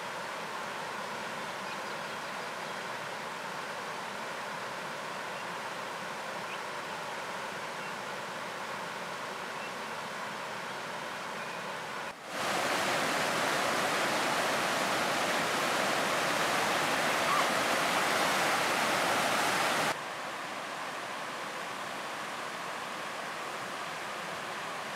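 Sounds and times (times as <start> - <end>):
floodwater rushing and churning: 12.2 - 24.9.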